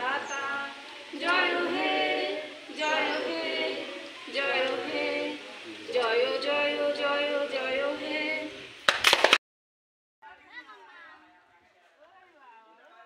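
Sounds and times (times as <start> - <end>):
group singing unaccompanied: 0.0 - 8.8.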